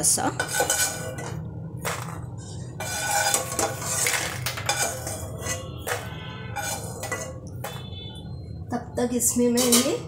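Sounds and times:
spoon scraping a pan: 0.2s - 8.0s, 9.5s - 10.0s
spoon clinking on steel plate: 2.8s - 7.9s, 9.6s - 10.0s.

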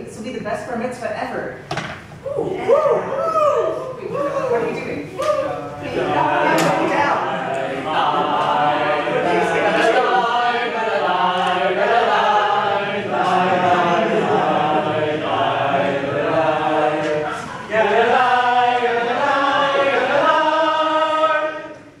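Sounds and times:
vocal group singing in harmony: 5.4s - 22.0s.

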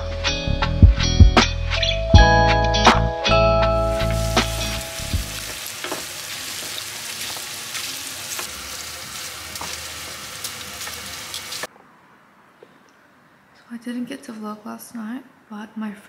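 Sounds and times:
music track: 0.0s - 5.6s
food sizzling in a frying pan: 3.8s - 11.7s.

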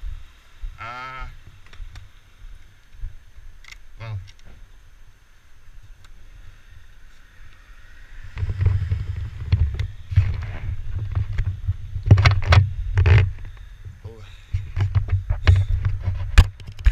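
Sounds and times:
camera handling rumble: 8.2s - 13.7s, 14.5s - 16.9s.

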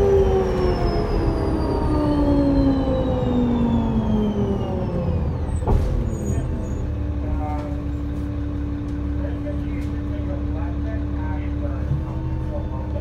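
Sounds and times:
bus drivetrain whine: 0.0s - 13.0s
bus engine idling: 0.0s - 13.0s.

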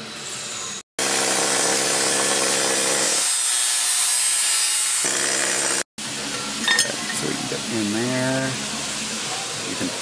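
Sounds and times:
angle grinder grinding steel: 0.0s - 5.8s.

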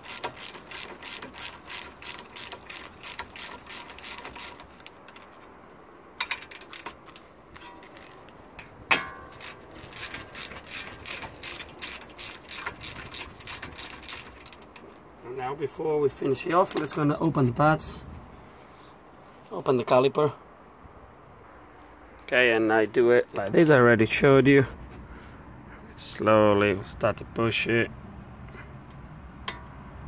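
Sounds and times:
hand ratchet clicking: 0.0s - 5.4s, 6.2s - 14.9s.

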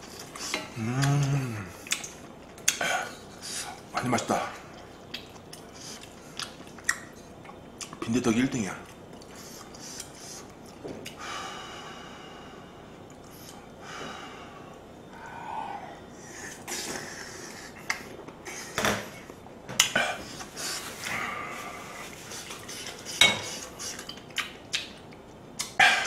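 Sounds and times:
man chewing food: 0.0s - 8.0s, 8.8s - 11.2s, 12.9s - 13.9s, 14.7s - 26.0s
noisy nasal breathing: 2.8s - 3.8s, 9.3s - 10.5s, 11.2s - 19.4s, 20.0s - 24.1s.

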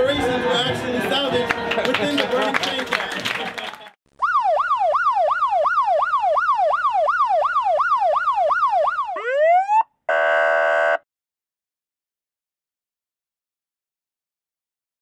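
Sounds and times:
police siren yelp and whoop: 4.2s - 11.0s.

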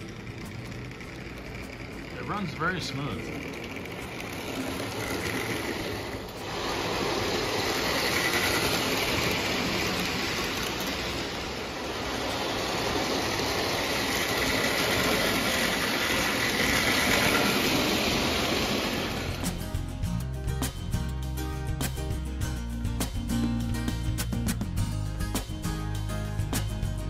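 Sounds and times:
model train rumbling on track: 0.0s - 19.8s.

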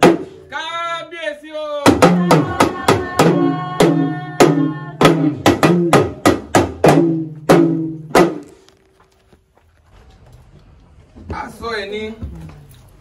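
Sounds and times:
talking drums beaten: 0.0s - 0.4s, 1.8s - 8.5s.

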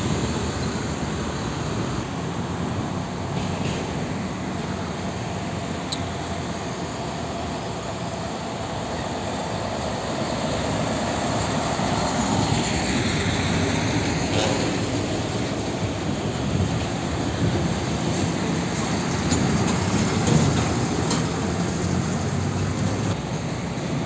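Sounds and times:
diesel truck driving past: 0.0s - 24.0s
road traffic: 0.0s - 24.0s.

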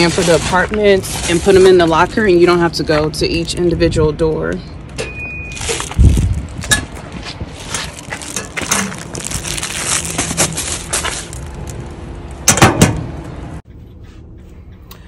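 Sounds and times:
parcels handled in metal lockers: 5.0s - 12.8s.

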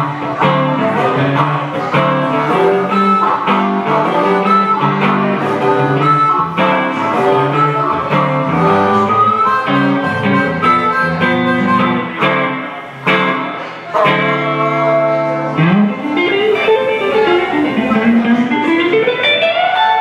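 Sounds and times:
electric guitar accompaniment: 0.0s - 20.0s
harmonica playing held notes: 0.0s - 20.0s.

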